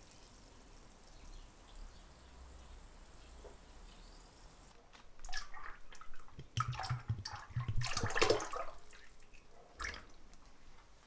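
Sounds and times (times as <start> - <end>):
liquid splashing and gurgling: 5.2 - 10.1.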